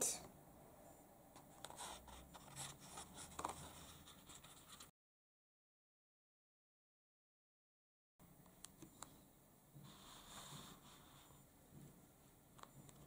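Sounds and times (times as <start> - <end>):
book pages rustling and turning: 1.4 - 4.9.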